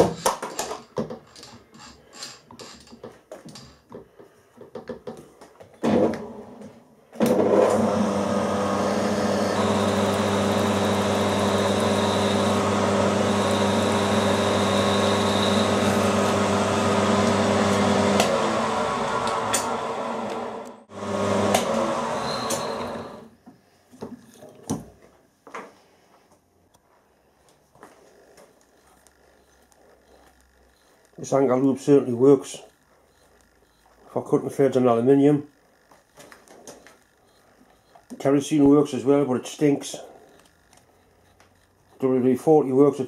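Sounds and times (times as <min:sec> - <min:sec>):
milling machine cutting metal: 0:07.3 - 0:23.3.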